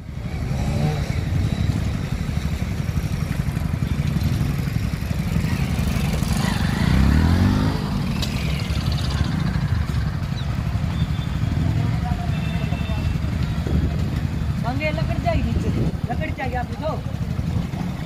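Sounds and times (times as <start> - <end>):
engine revving: 0.0 - 2.5, 5.3 - 10.0
diesel engine low rumble: 0.0 - 18.0.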